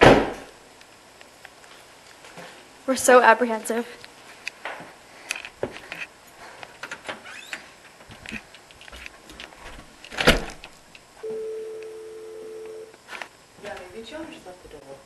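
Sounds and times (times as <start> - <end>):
footsteps in a house: 1.6 - 2.8, 3.8 - 10.8
steady humming tone: 10.9 - 15.0.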